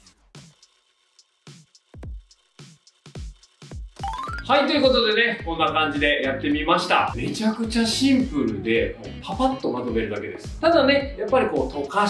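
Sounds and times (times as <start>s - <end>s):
sparse electronic beat: 1.9s - 7.9s.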